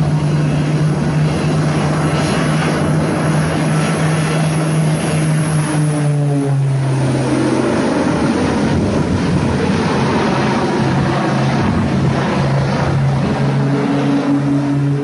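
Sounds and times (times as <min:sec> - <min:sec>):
propeller plane engines droning: 0:00.0 - 0:15.0
rushing noise: 0:00.0 - 0:15.0.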